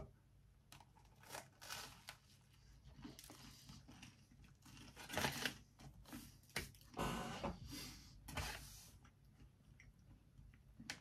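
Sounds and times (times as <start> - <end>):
crunching into crusty bread: 0.7 - 6.1.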